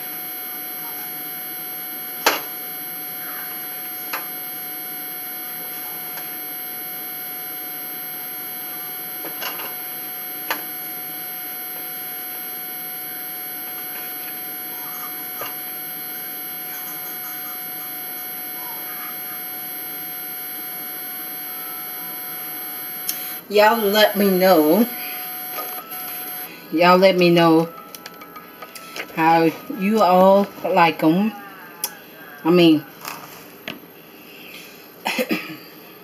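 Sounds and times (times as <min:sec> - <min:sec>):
faint electrical whine: 0:00.0 - 0:34.8.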